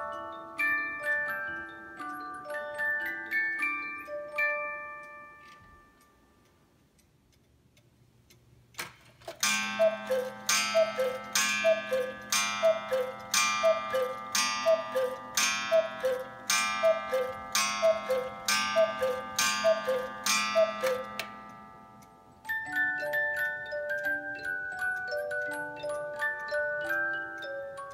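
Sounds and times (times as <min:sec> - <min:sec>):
clock strike release click: 0:08.8 - 0:21.5
two-note cuckoo calls: 0:09.5 - 0:21.4.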